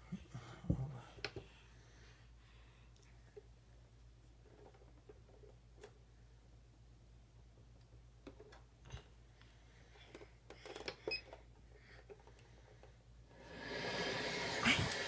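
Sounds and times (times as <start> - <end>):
steady hiss: 13.3 - 15.0.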